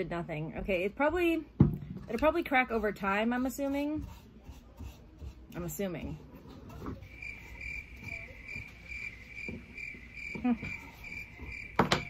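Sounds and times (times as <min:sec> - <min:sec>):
cricket chirping: 0:07.1 - 0:12.0.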